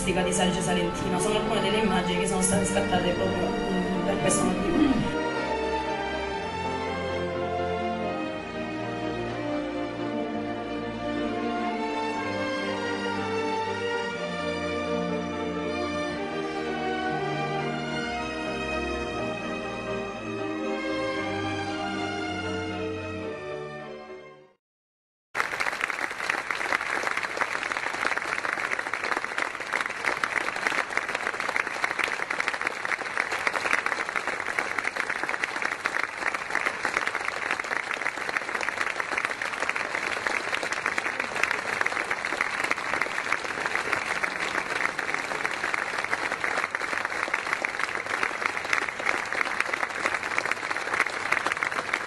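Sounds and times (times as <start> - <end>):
audience applauding: 25.4 - 52.0.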